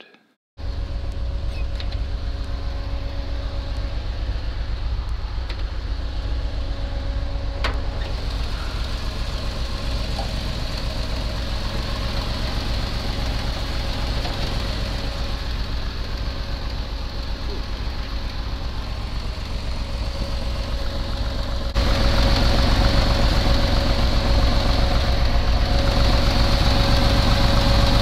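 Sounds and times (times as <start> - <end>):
car engine idling: 0.6 - 28.0.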